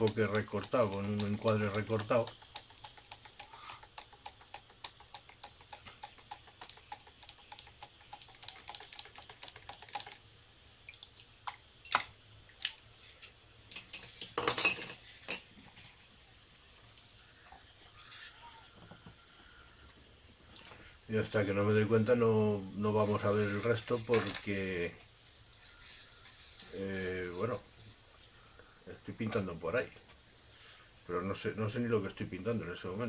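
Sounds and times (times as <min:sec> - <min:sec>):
brush scraping metal palette: 0:22.9 - 0:24.6, 0:25.2 - 0:28.2.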